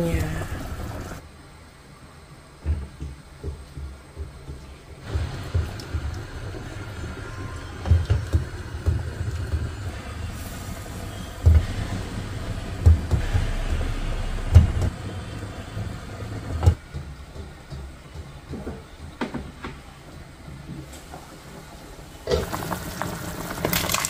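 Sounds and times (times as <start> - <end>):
low rumble: 5.1 - 16.8.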